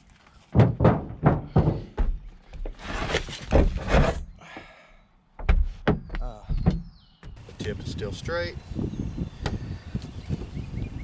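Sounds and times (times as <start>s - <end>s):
thuds on car metal body: 0.6s - 2.2s.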